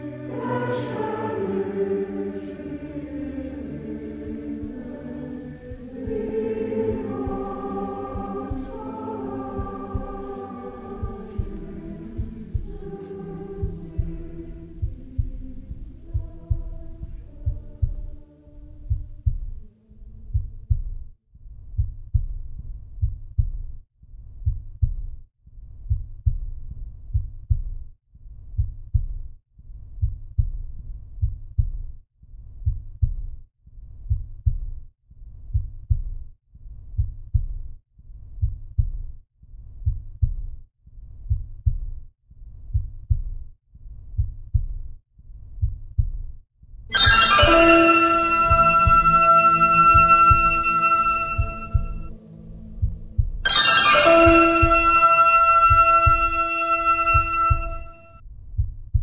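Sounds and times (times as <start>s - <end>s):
heartbeat thumps: 5.6s - 23.8s, 24.4s - 25.2s, 25.8s - 27.9s, 47.0s - 59.0s.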